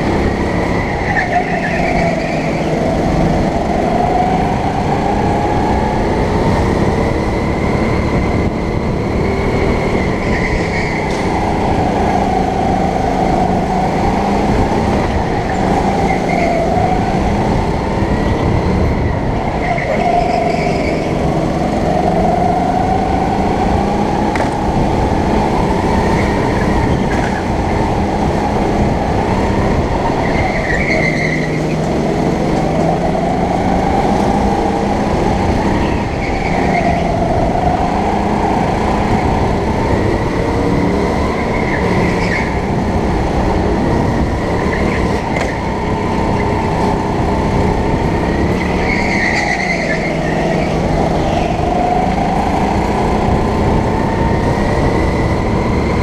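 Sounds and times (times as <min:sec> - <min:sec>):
go-kart engine revving: 0:00.0 - 0:56.0
wind rushing noise: 0:02.1 - 0:30.7.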